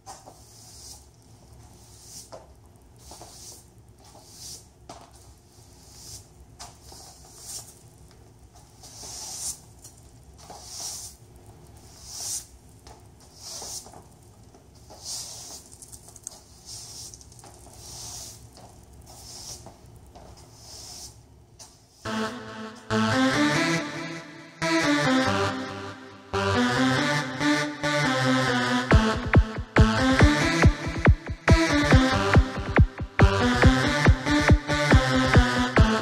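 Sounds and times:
broom bristles swishing on floor: 0.0s - 22.1s.

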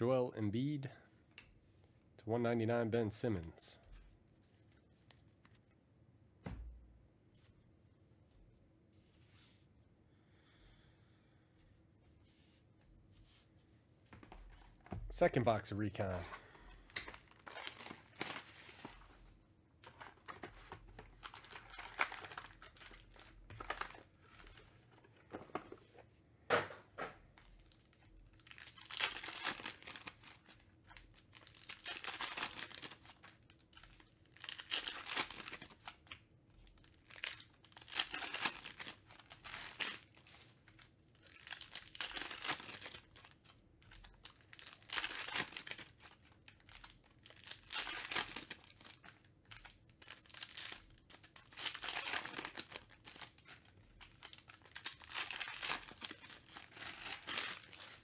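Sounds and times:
foil wrappers tearing and crinkling: 16.9s - 19.1s, 21.0s - 24.6s, 27.7s - 36.1s, 36.8s - 58.0s.

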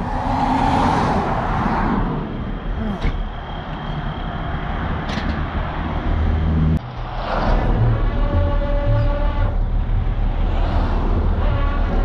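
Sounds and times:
truck engine and road rumble: 0.0s - 12.0s.

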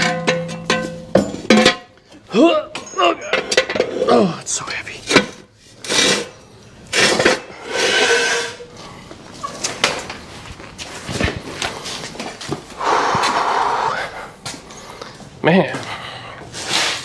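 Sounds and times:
person breathing hard and grunting: 12.8s - 14.4s.

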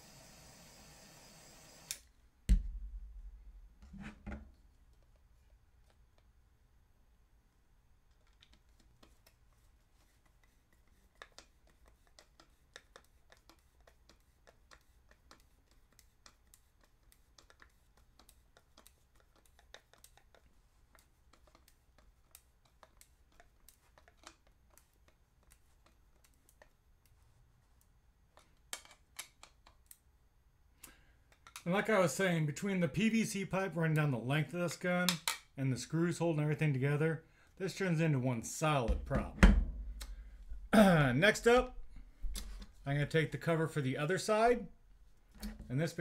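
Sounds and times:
screwdriver clicks and scrapes: 8.1s - 27.2s, 28.3s - 30.0s.

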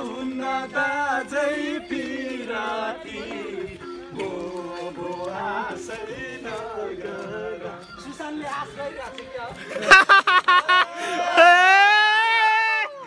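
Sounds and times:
song with singing voice: 0.0s - 11.7s.

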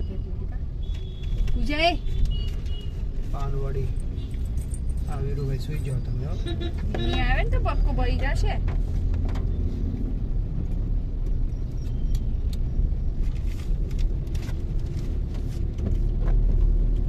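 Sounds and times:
car cabin rumble: 6.0s - 11.2s.

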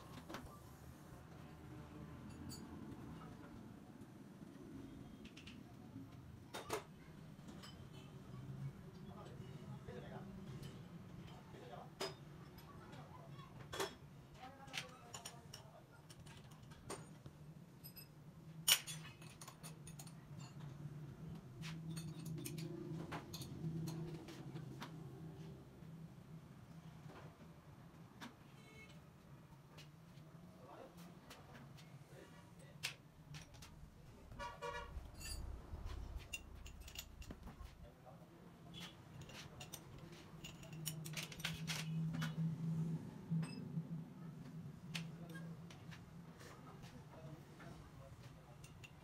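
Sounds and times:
metal clinks and clicks: 35.1s - 37.7s, 39.1s - 42.4s.

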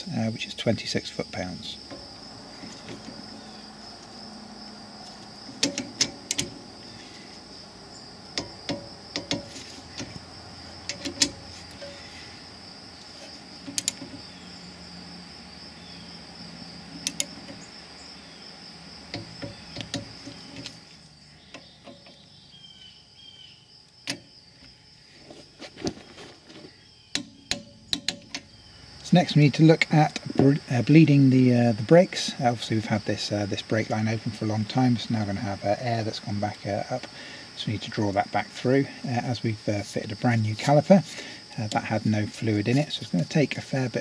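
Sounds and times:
crickets chirring: 0.0s - 44.0s
torque wrench clicking: 5.6s - 6.6s, 10.8s - 12.0s, 13.6s - 14.1s, 17.0s - 17.6s.

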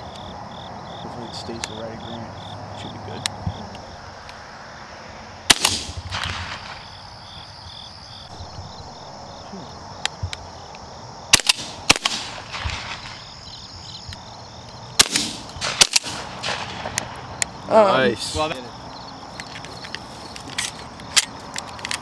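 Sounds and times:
crickets chirping: 0.0s - 22.0s
shotgun blasts: 5.5s - 7.0s, 11.3s - 13.5s, 15.0s - 17.4s.

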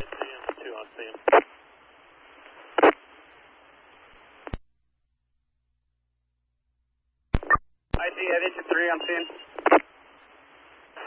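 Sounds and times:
radio static hiss: 0.0s - 4.6s, 7.4s - 11.0s.

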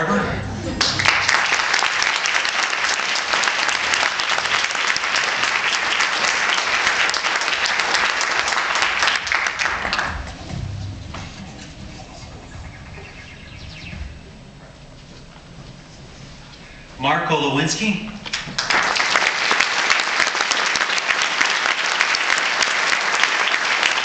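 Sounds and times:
audience applauding: 0.7s - 10.6s, 18.2s - 24.0s.

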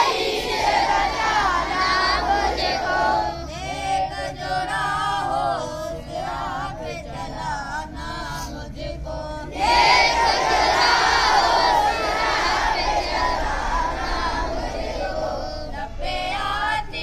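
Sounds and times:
boys chanting a prayer: 0.0s - 17.0s.

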